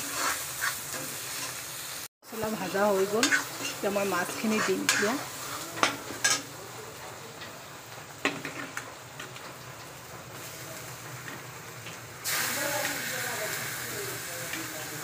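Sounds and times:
metal spatula scraping a wok: 0.0s - 1.8s, 2.4s - 6.5s
food sizzling in oil: 0.0s - 15.0s.

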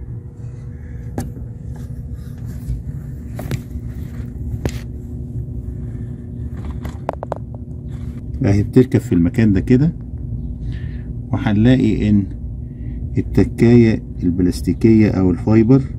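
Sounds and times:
low rumble: 0.0s - 14.4s
faint hum: 0.0s - 15.9s.

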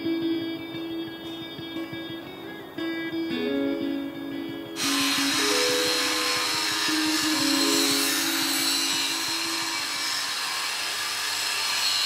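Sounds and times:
background music: 0.0s - 10.4s
grinder grinding steel: 4.8s - 12.0s.

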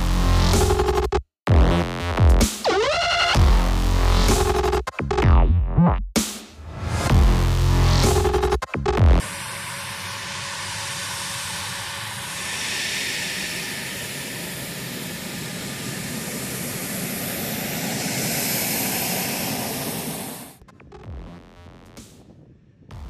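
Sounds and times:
jet engine running: 9.2s - 21.0s.

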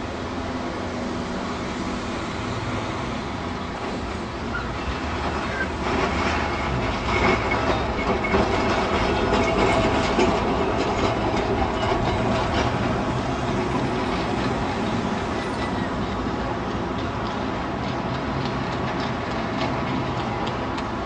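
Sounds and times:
electric tram running on track: 0.0s - 21.0s
wheels clicking over rail joints: 3.7s - 21.0s.

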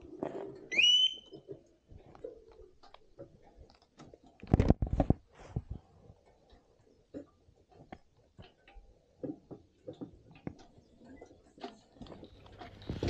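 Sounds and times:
short rising whistle: 0.7s - 1.3s.

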